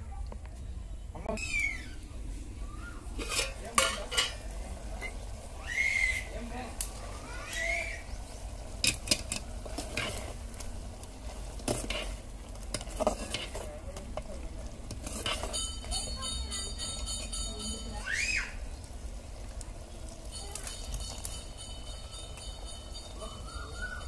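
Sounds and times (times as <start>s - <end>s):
curry stirred in metal pot: 3.1s - 5.6s, 8.0s - 18.0s
utensil clinking against pot: 3.2s - 5.1s, 14.9s - 18.0s.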